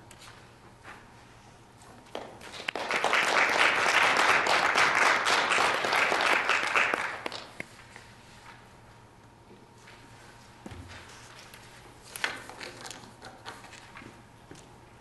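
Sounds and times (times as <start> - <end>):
audience applauding: 2.4 - 7.7.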